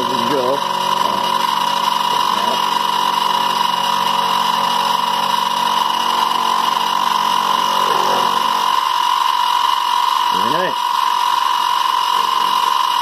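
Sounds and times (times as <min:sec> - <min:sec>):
milling machine whining: 0:00.0 - 0:13.0.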